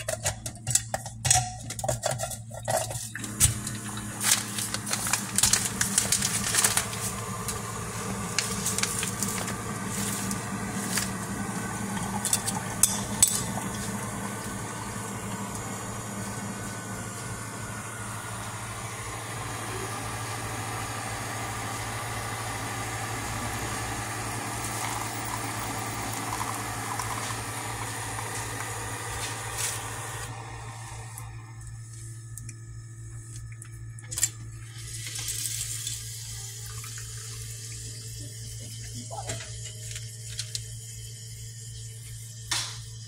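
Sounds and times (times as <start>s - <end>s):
coffee maker pump hum: 0.0s - 43.0s
hot water gurgling into cup: 2.5s - 31.3s, 34.6s - 38.8s.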